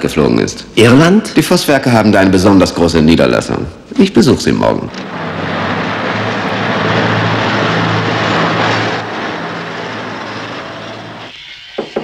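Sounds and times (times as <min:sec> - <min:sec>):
low hum: 0:04.9 - 0:11.3
rushing engine noise: 0:04.9 - 0:11.3.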